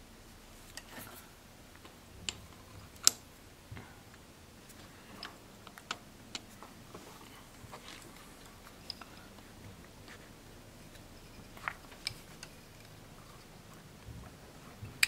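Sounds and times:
sharp metal clicks and taps: 2.2s - 3.2s.

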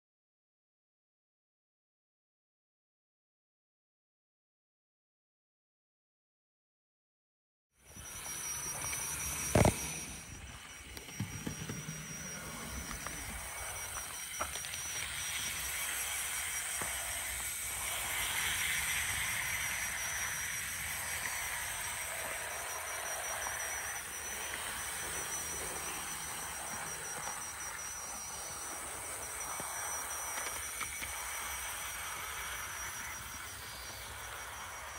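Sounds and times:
model train whirring on rails: 7.8s - 34.9s.

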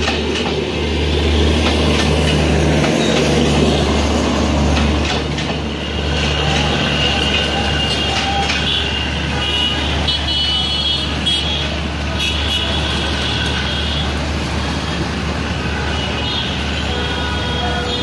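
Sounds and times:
traffic rumble: 0.0s - 18.0s
vehicle horns honking: 5.9s - 14.1s, 15.8s - 18.0s.

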